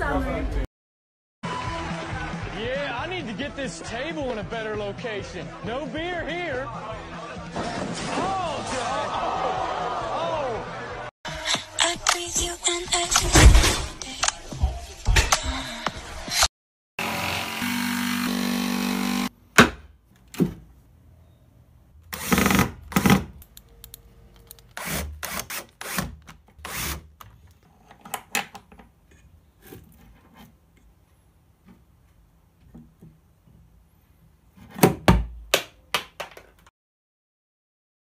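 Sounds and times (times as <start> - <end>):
power saw cutting wood: 17.0 - 19.3
cordless drill bursts: 22.1 - 22.7.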